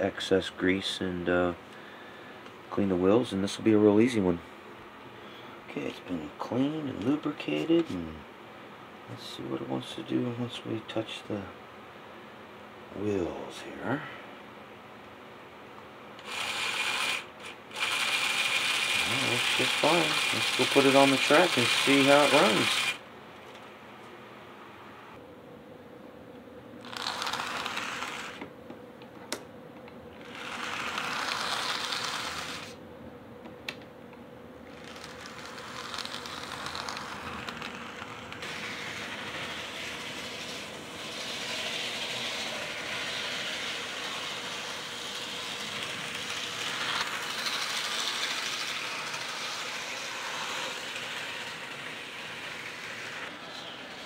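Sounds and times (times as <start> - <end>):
model train motor whirring: 16.2 - 23.0, 26.8 - 28.5, 30.2 - 32.8, 34.7 - 54.0.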